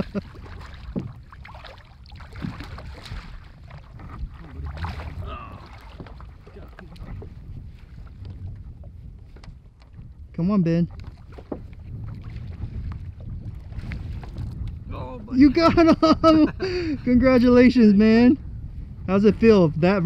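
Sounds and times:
water sloshing and splashing: 0.0 - 14.9
wind noise on microphone: 0.0 - 20.0.

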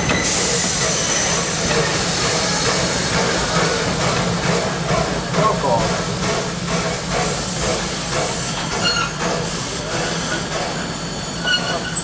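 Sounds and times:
steam locomotive hissing: 0.0 - 12.0
brief high squeal: 11.3 - 12.0.

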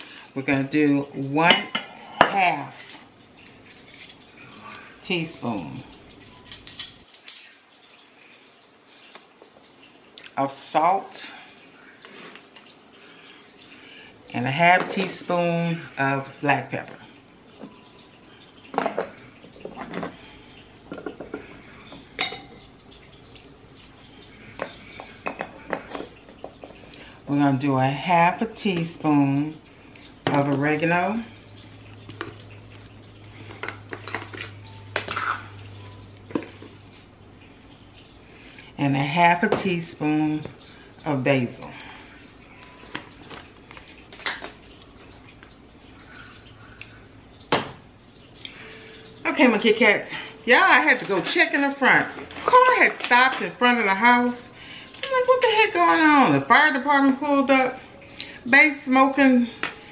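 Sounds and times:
spoon and dishes clinking: 6.0 - 7.8, 20.8 - 26.8, 33.4 - 37.0, 42.4 - 45.4, 59.5 - 59.9
metal spoons tapping glass jar: 6.1 - 7.6.

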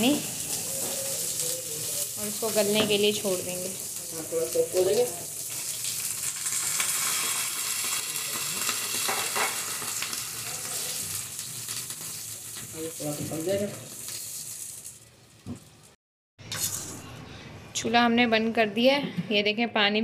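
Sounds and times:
water sizzling in hot oil: 0.0 - 17.0
spatula stirring pan: 0.2 - 3.3.

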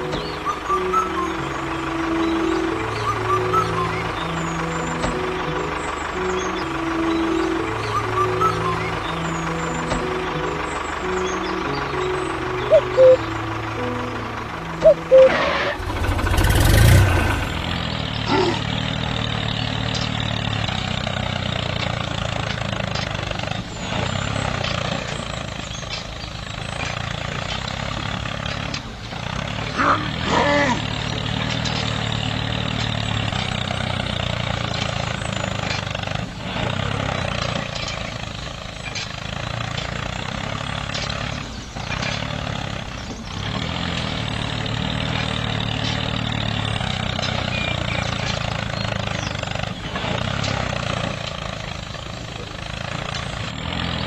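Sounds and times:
gliding pitch sound: 0.0 - 18.0
tractor engine running: 0.0 - 54.0.

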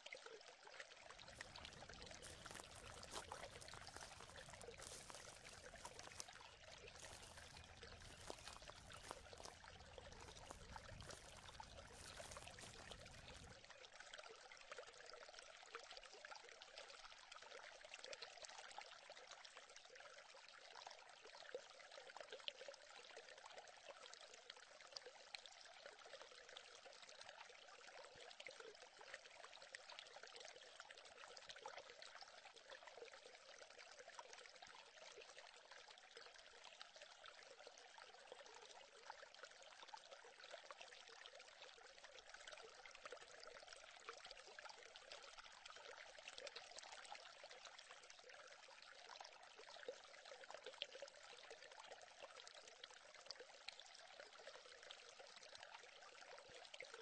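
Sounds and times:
faint stream trickling: 0.0 - 57.0.

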